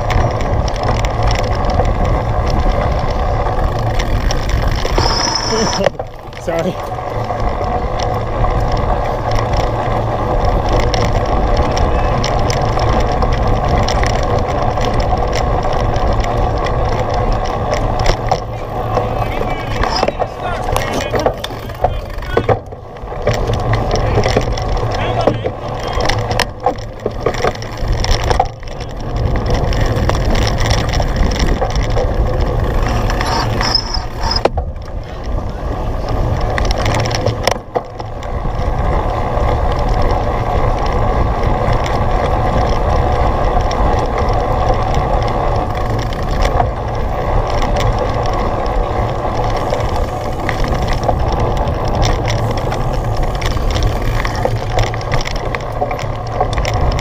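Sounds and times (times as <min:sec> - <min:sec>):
bike rattling over muddy ground: 0:00.0 - 0:57.0.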